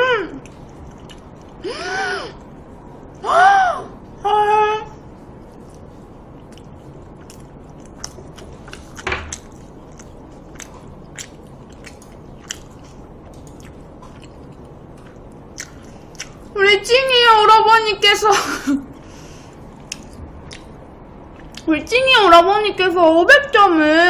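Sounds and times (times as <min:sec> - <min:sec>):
wet chewing mouth clicks: 0:00.4 - 0:01.6, 0:05.5 - 0:16.5, 0:19.7 - 0:21.7.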